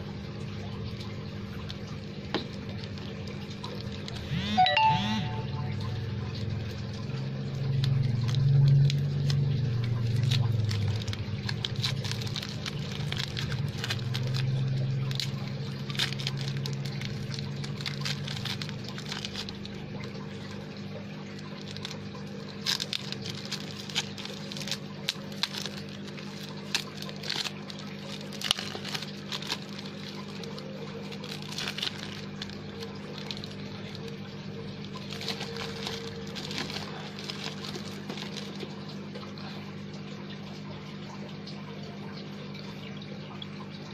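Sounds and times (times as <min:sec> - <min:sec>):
low hum: 0:04.1 - 0:23.9
paper and tape crinkling: 0:07.7 - 0:39.5.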